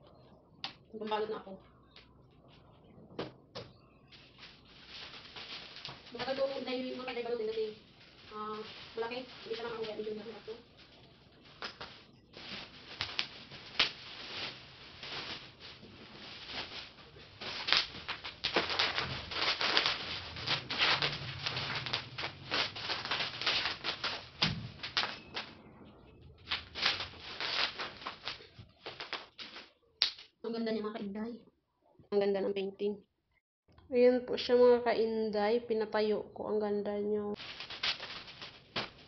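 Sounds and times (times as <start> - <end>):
plastic wrapping crinkling: 4.0 - 30.3, 37.4 - 39.0.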